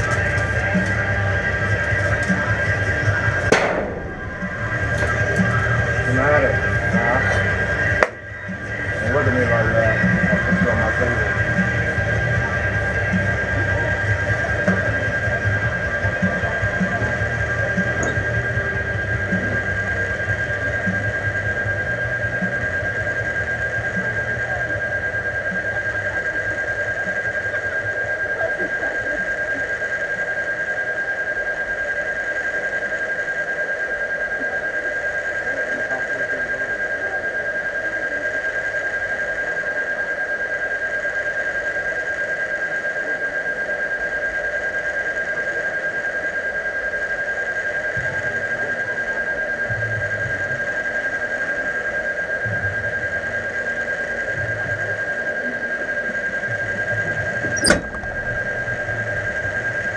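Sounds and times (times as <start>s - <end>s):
droning hum: 0.0s - 59.9s
low thumps: 3.5s - 6.0s, 57.4s - 59.4s
steady high-pitched tone: 3.5s - 11.4s, 50.7s - 59.9s.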